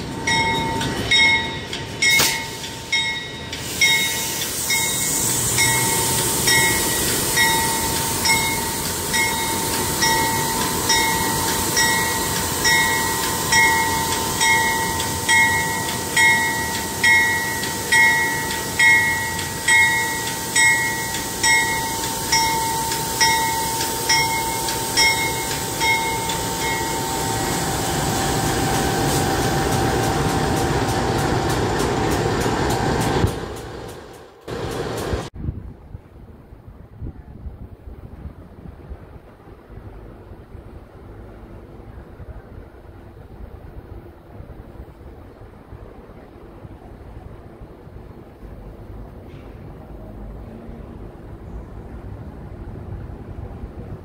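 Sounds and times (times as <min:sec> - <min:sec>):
diesel locomotives passing: 0:00.0 - 0:35.4, 0:37.9 - 0:54.0
ringing clang: 0:00.2 - 0:05.0.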